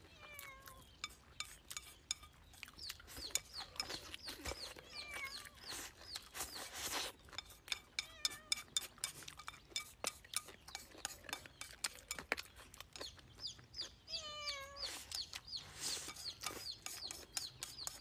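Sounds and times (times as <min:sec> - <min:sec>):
mouth sounds of eating: 0:00.0 - 0:18.0
birds chirping: 0:00.1 - 0:18.0
chicken clucking: 0:01.0 - 0:18.0.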